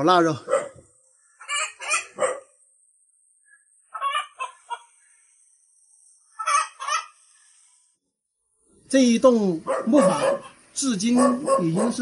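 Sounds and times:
chickens clucking: 1.4 - 2.3, 3.9 - 5.0, 6.4 - 7.2.

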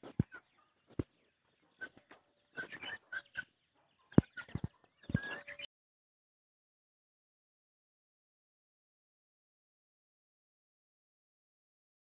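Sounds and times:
chickens clucking: 0.0 - 5.7.

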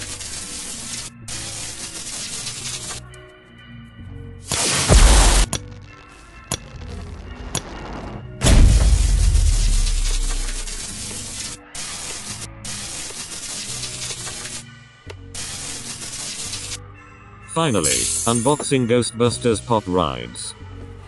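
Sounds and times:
background music: 0.0 - 21.0
loud boom: 6.8 - 10.2.

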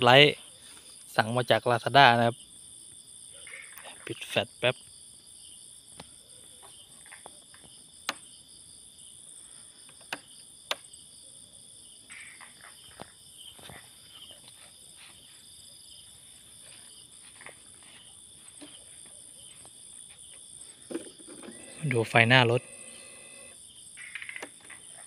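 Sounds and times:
crickets and insects chirring: 0.0 - 25.0.

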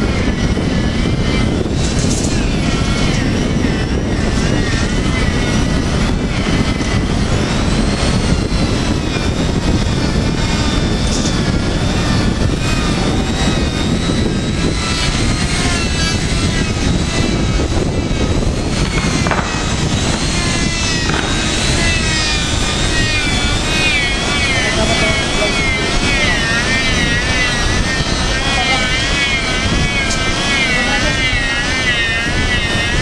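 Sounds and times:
angle grinder buffing rubber: 0.0 - 33.0.

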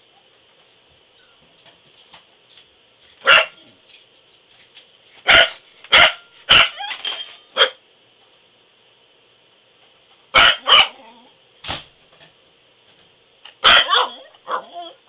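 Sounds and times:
dog barking: 3.2 - 3.7, 5.3 - 6.8, 7.6 - 7.8, 10.3 - 11.0, 13.6 - 15.0.

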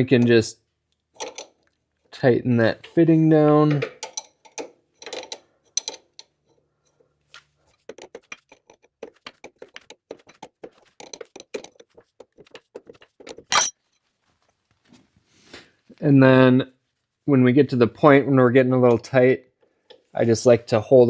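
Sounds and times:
metallic clank: 13.5 - 13.7.

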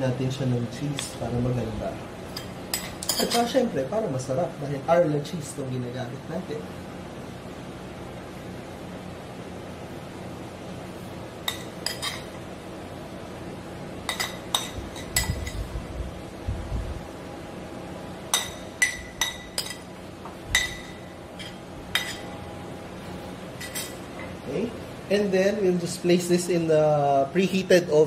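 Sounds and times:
metal spoon clinking on plate: 2.3 - 3.6, 11.5 - 12.4, 14.1 - 15.7, 18.3 - 19.9, 20.5 - 22.4, 23.6 - 24.0.

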